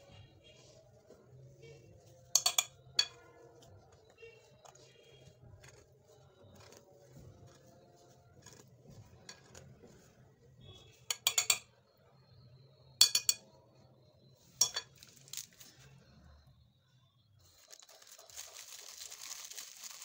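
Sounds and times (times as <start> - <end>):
potato mashing and scraping: 0.0 - 11.5
metal clinking against glass bowl: 2.3 - 3.4, 11.1 - 11.7, 13.0 - 13.5, 14.6 - 15.1.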